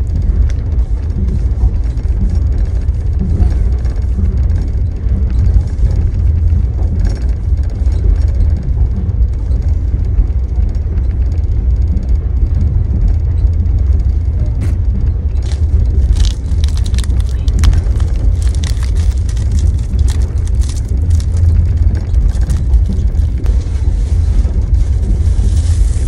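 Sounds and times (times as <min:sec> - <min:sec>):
train carriage rumbling: 0:00.0 - 0:26.0
plastic wrapper crinkling: 0:15.4 - 0:26.0.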